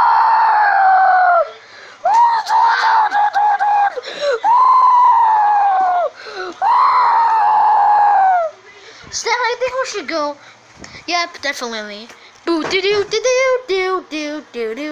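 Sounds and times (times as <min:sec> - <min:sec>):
person screaming: 0:00.0 - 0:01.5, 0:02.1 - 0:08.5.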